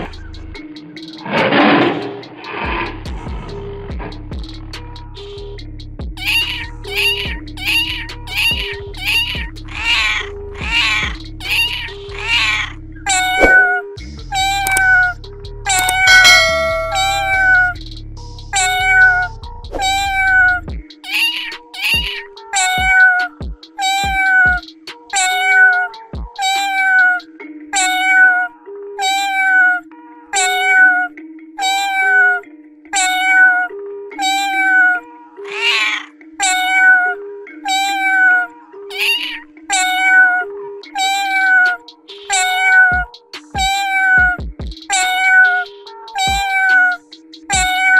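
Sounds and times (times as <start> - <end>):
cat meows in music: 1.2 - 2.9, 6.1 - 17.8, 18.5 - 47.9
stepping bass line: 15.7 - 17.7.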